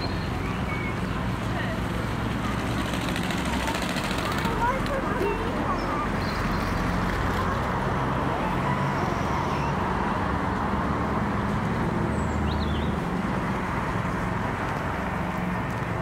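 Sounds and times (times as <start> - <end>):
bird chirp: 0.0 - 1.2, 5.6 - 7.0, 12.1 - 13.0
road traffic rumble: 0.0 - 16.0.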